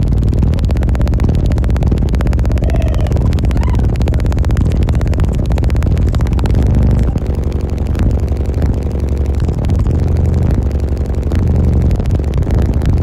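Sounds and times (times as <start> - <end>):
bass-heavy music from car speakers: 0.0 - 13.0.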